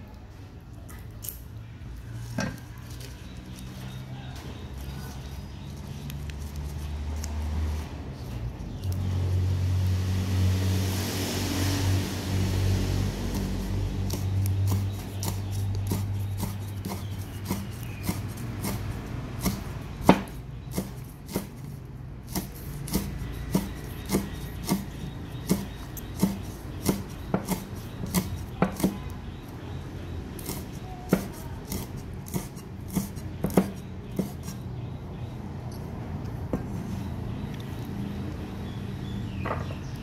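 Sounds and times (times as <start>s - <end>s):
cleaver chopping on wooden block: 14.1s - 21.6s, 22.3s - 29.2s, 30.4s - 34.6s.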